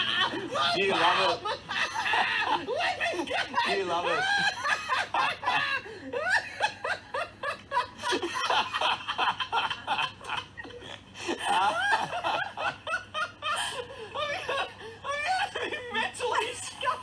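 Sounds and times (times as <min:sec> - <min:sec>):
people laughing hard: 0:00.0 - 0:17.0.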